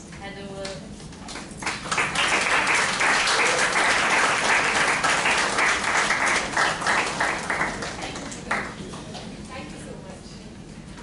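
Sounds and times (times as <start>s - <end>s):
audience applauding: 1.3s - 8.9s.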